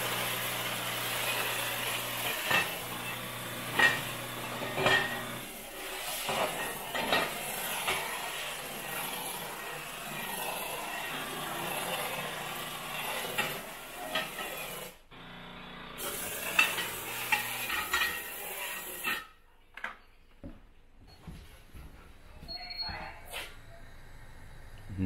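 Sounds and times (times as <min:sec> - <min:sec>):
steam jet hissing: 0:00.0 - 0:15.0, 0:16.0 - 0:19.2
utensils clattering on counter: 0:01.2 - 0:14.9, 0:16.0 - 0:19.4.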